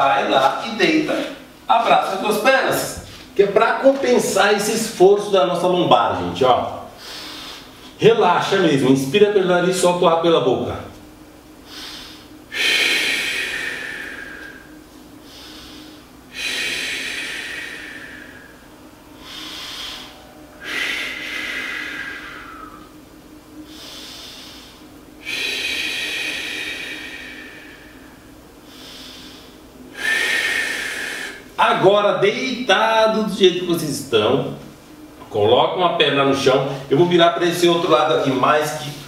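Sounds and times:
man breathing deeply: 6.9s - 8.0s, 11.6s - 31.6s.

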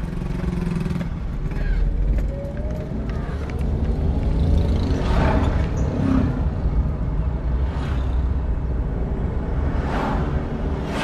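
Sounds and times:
passing vehicles swishing: 2.9s - 11.0s
truck passing whoosh: 9.5s - 11.0s.

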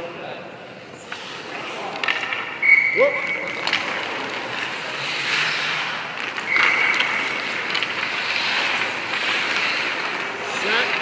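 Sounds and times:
skate blades scraping ice: 0.9s - 11.0s
high squeal: 2.6s - 3.6s.

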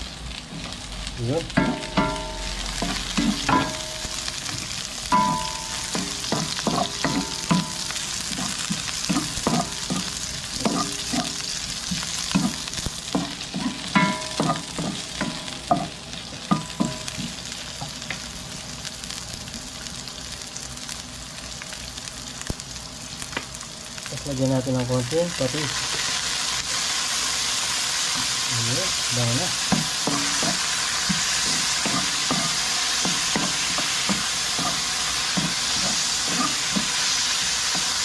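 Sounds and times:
food sizzling in hot oil: 0.0s - 38.0s
spoon knocking and scraping pan: 1.6s - 18.0s, 29.6s - 38.0s.

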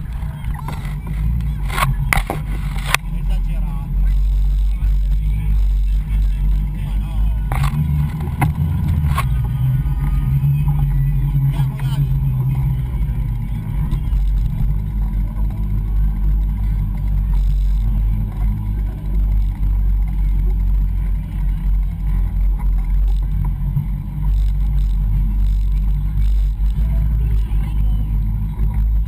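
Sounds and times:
faint voices: 0.0s - 29.0s.

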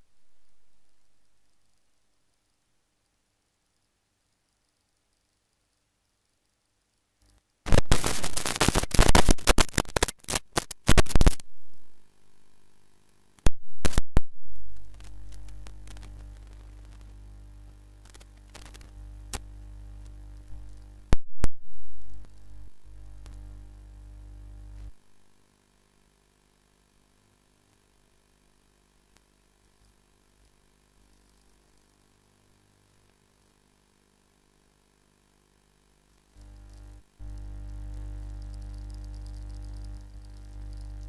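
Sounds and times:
low electrical hum: 0.0s - 41.0s
sharp clicks: 7.2s - 11.5s, 13.9s - 21.2s
loud crackling static: 7.2s - 41.0s
faint held tones: 14.0s - 25.0s.

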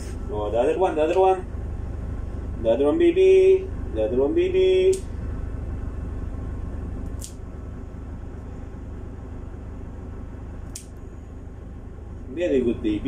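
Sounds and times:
low machine hum: 0.0s - 13.0s
nail clipper snipping claw: 7.1s - 7.4s, 10.7s - 11.0s.

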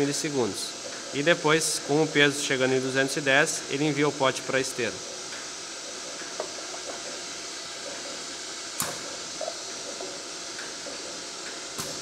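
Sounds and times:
steady air hiss: 0.0s - 12.0s
pneumatic cylinder click: 8.8s - 9.2s, 11.8s - 12.0s.

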